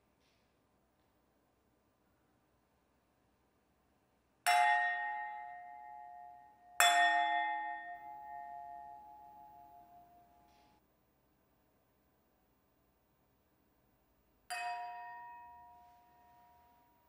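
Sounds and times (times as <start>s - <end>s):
wine glasses struck ringing: 4.5s - 10.8s, 14.5s - 17.0s.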